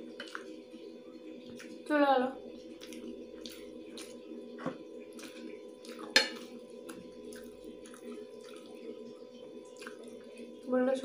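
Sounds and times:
steady low hum: 0:00.0 - 0:11.0
wet chewing and lip smacks: 0:02.8 - 0:04.2, 0:05.2 - 0:08.9, 0:09.7 - 0:10.3.

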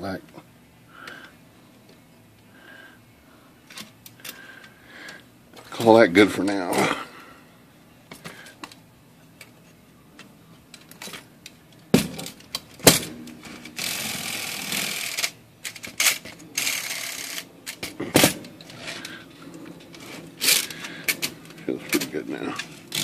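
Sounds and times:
typewriter carriage rattling slide: 0:19.9 - 0:23.0.

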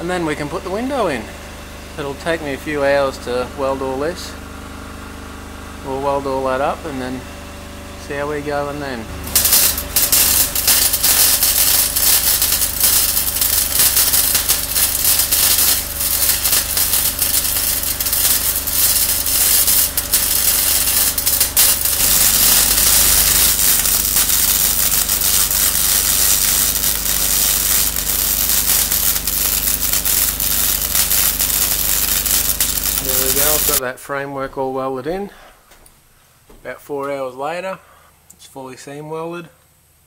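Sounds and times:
welder arc crackle: 0:09.2 - 0:33.8.

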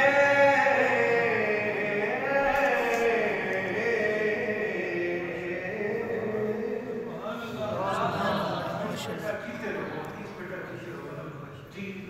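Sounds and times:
man chanting into microphone: 0:00.0 - 0:08.0.

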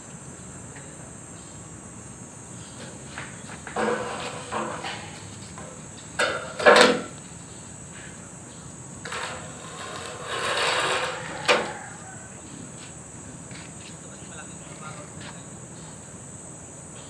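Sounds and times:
crickets chirring: 0:00.0 - 0:17.0
sharp knocks and clatters: 0:03.3 - 0:07.2
scraping rush: 0:09.1 - 0:12.0.

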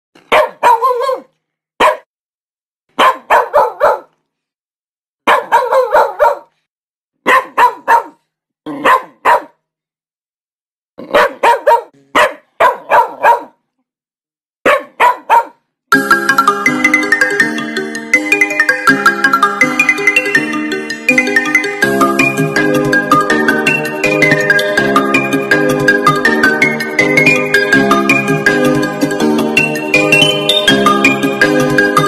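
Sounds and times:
dog barking: 0:00.2 - 0:02.1, 0:02.9 - 0:04.2, 0:05.2 - 0:06.6, 0:07.2 - 0:09.7, 0:11.0 - 0:13.7, 0:14.6 - 0:15.7
upbeat music: 0:15.9 - 0:32.0.

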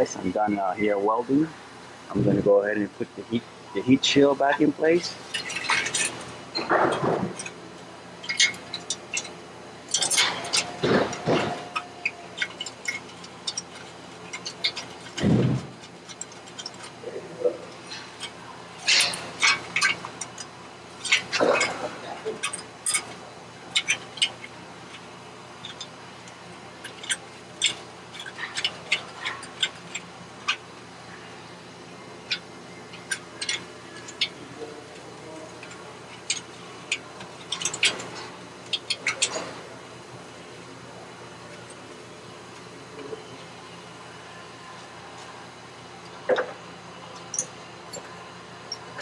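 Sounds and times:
sheet metal scraping and clinking: 0:04.6 - 0:07.6, 0:08.2 - 0:30.7
sheet-metal heat shield clicking: 0:08.2 - 0:17.0.

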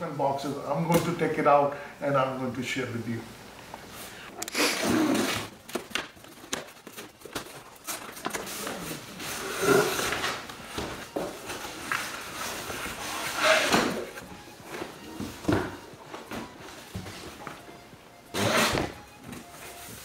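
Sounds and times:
cardboard rustling and scraping: 0:06.1 - 0:17.4
box sliding against carton: 0:09.2 - 0:10.2.

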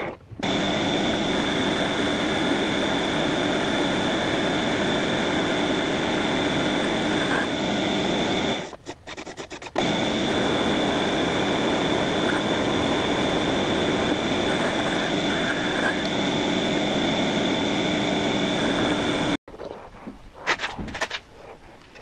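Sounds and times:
file against spinning shaft: 0:06.3 - 0:16.3
metal lathe whining: 0:09.8 - 0:19.4.

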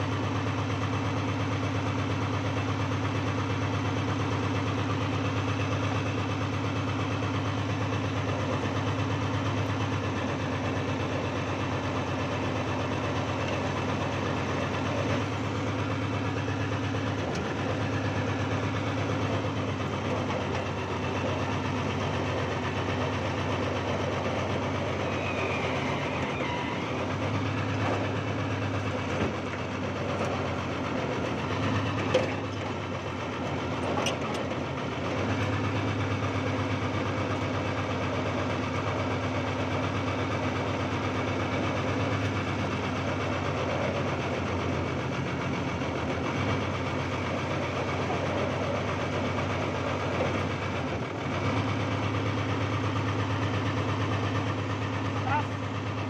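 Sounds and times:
backhoe engine running: 0:00.0 - 0:56.0.

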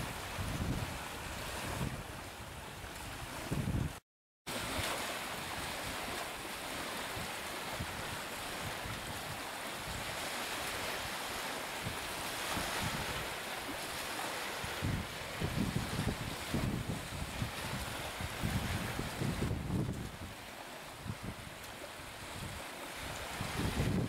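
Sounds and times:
strong wind: 0:00.0 - 0:04.0, 0:04.6 - 0:24.0
wind buffeting microphone: 0:00.0 - 0:04.0, 0:05.4 - 0:10.4, 0:11.8 - 0:24.0
choppy waves: 0:00.0 - 0:24.0.

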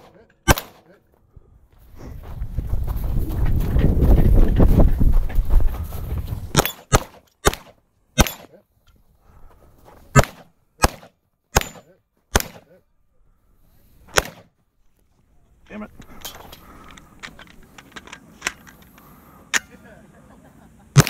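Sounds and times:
handgun shots: 0:00.0 - 0:00.9, 0:06.5 - 0:08.5, 0:10.2 - 0:12.7, 0:14.1 - 0:14.5.

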